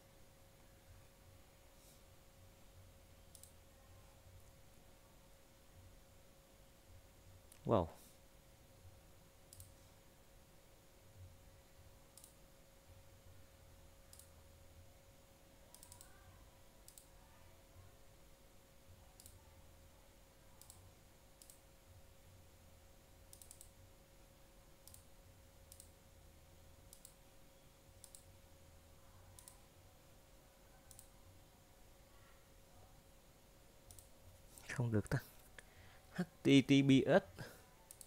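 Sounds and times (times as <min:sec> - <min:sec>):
faint steady hum: 0:00.0 - 0:38.0
keyboard and mouse clicks: 0:03.3 - 0:03.6, 0:09.5 - 0:09.8, 0:12.2 - 0:12.4, 0:14.1 - 0:14.4, 0:15.7 - 0:16.2, 0:16.8 - 0:17.1, 0:20.6 - 0:20.8, 0:23.3 - 0:23.7, 0:24.8 - 0:25.1, 0:25.7 - 0:26.0, 0:26.9 - 0:27.2, 0:28.0 - 0:28.3, 0:29.4 - 0:29.6, 0:30.9 - 0:31.1, 0:33.9 - 0:34.1.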